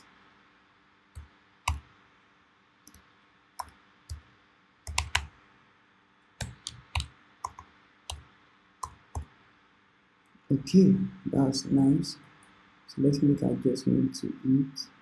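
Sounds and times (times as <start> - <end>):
computer keyboard clicks: 4.9 - 5.3, 6.4 - 9.3.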